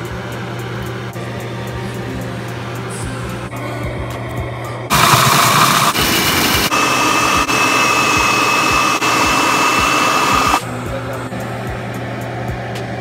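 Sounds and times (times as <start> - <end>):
food processor motor whining: 4.9 - 10.6.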